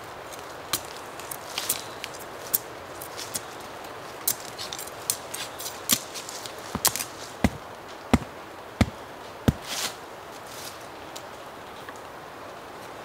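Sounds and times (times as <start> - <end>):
sharp chopping strikes: 6.7 - 10.0.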